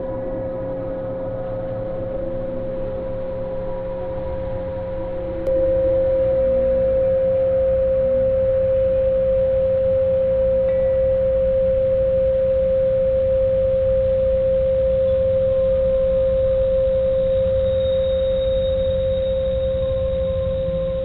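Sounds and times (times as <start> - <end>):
low drone: 0.0 - 12.3
steady pure tone: 0.0 - 21.0.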